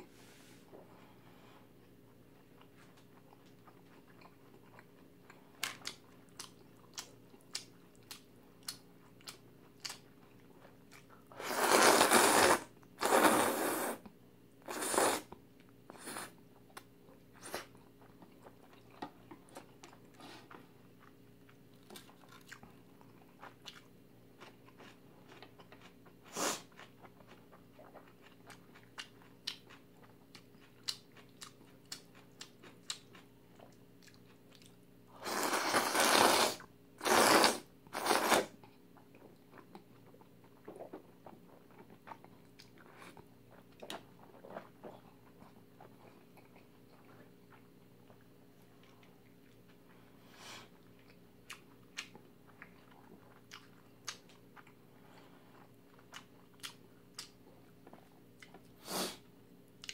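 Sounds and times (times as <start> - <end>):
noodle slurps: 11.4 - 14.0, 14.7 - 15.3, 35.2 - 38.5.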